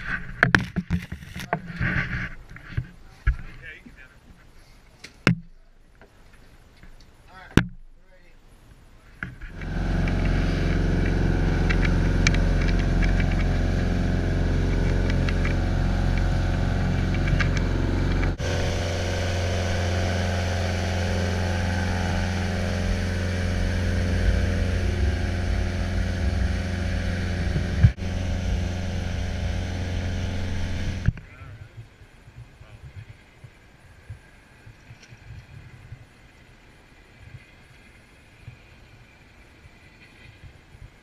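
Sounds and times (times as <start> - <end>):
boat engine running: 9.4 - 33.4.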